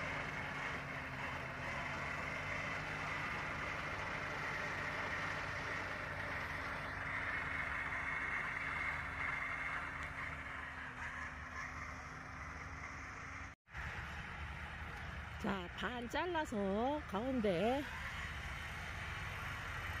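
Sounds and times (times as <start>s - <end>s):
disc mower whine: 0.0s - 15.4s
tractor engine drone: 0.0s - 20.0s.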